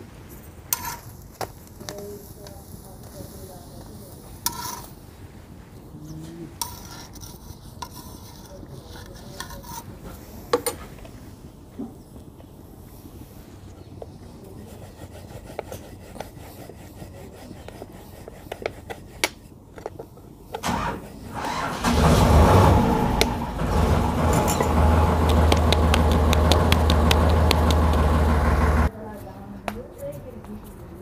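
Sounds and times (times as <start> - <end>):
rolling pin on dough: 6.5 - 10.4, 14.0 - 20.3, 24.2 - 28.9
engine droning: 20.6 - 28.9.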